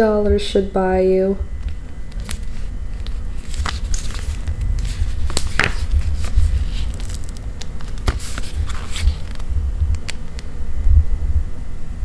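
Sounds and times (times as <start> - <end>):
camera handling rumble: 1.6 - 10.5
soft rustles and clicks: 1.6 - 10.5.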